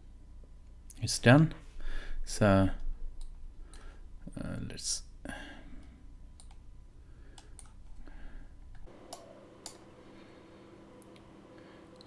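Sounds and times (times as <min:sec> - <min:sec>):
faint steady hum: 0:00.0 - 0:12.0
computer mouse clicks: 0:06.4 - 0:06.6, 0:07.3 - 0:08.0.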